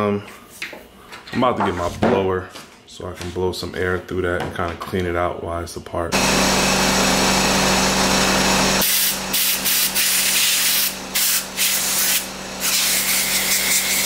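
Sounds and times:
air blower hissing: 6.1 - 14.0.

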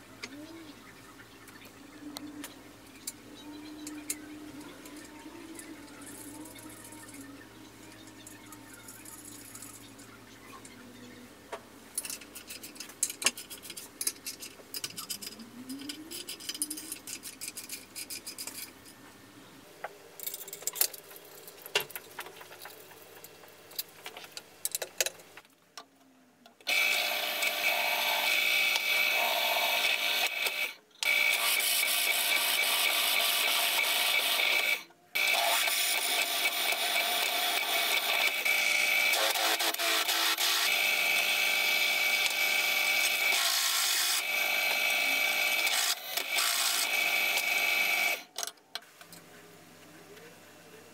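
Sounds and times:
drill press cutting metal: 26.7 - 48.2.

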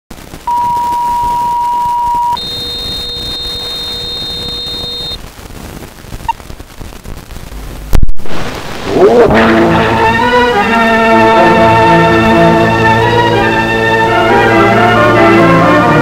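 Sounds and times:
old film hiss and crackle: 0.1 - 14.5
short beep: 0.5 - 5.2
steady test tone: 0.5 - 5.2.

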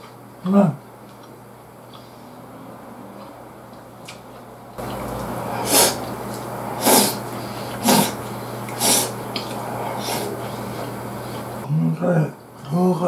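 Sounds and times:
chewing: 3.2 - 11.0
man snorting breaths: 5.3 - 11.7.

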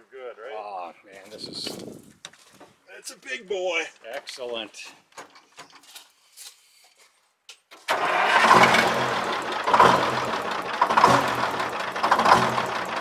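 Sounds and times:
diesel truck engine idling: 8.0 - 13.0.

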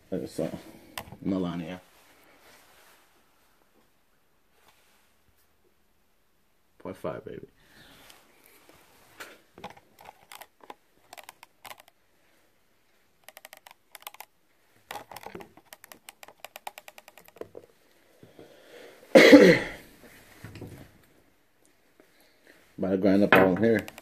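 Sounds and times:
plastic grinder clicking: 9.6 - 11.9, 13.2 - 14.3, 14.9 - 17.5.

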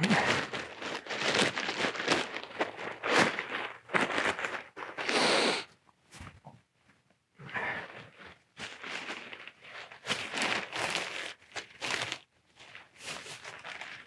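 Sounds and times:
nylon tent rustling: 0.0 - 5.4, 8.2 - 14.0.

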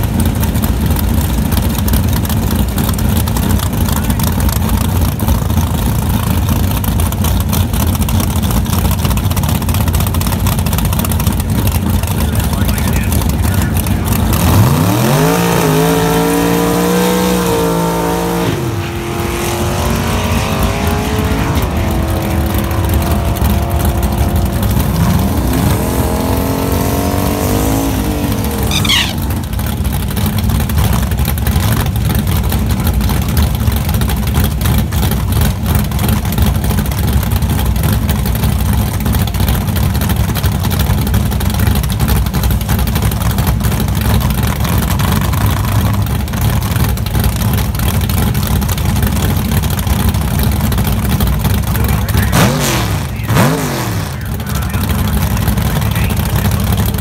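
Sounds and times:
race car engines revving: 0.0 - 57.0
short high squeal: 28.6 - 29.3.

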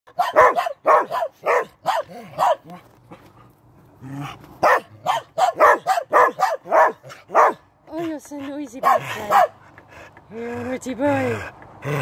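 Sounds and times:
small dog barking: 0.1 - 2.7, 4.6 - 7.6, 8.8 - 9.6.

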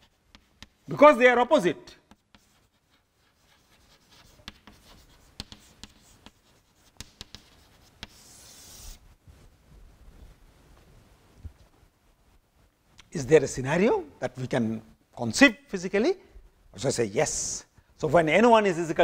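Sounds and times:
chalk writing on chalkboard: 0.0 - 0.9, 2.1 - 9.0.

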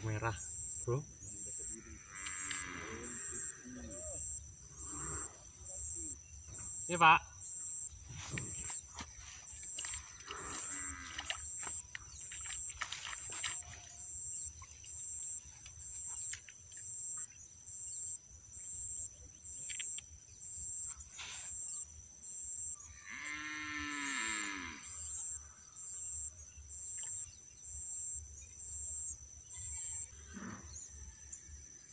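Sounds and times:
insects chorus pulsing: 0.0 - 31.9
faint clicks: 2.2 - 2.7, 19.6 - 20.1.

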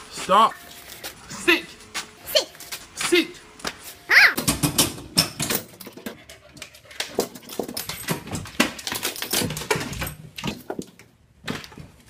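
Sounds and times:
dog scrabbling at metal gate: 4.3 - 10.9.

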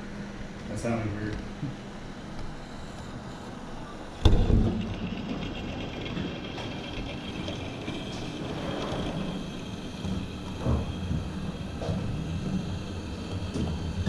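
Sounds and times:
high motor whine: 0.0 - 14.0
model train rumbling on track: 4.2 - 14.0.

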